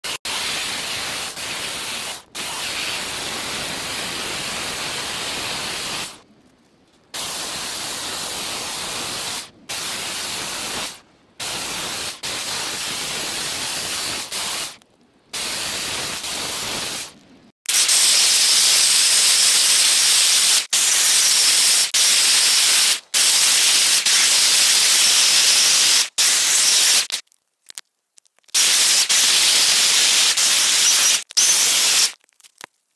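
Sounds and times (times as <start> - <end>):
electric chainsaw cutting log: 30.6 - 32.1.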